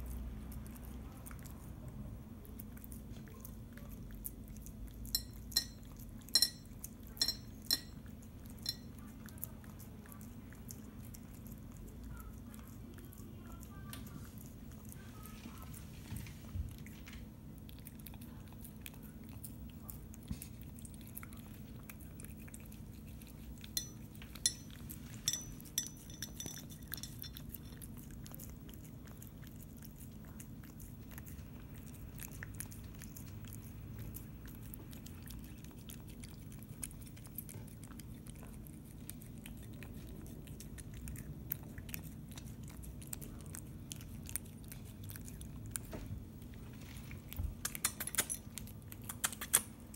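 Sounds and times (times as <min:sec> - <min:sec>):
cat chewing and licking: 0:00.0 - 0:49.9
clinks on ceramic plate: 0:05.2 - 0:08.0, 0:08.6 - 0:08.9, 0:23.8 - 0:27.6.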